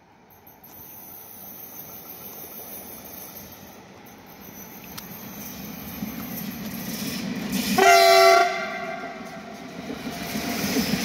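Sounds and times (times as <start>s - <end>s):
train rumbling past: 0.0s - 11.0s
train horn blast: 7.8s - 9.4s.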